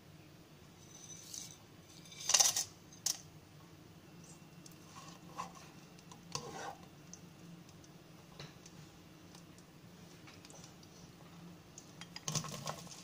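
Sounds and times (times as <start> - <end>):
spatula scraping pan: 4.9 - 6.9.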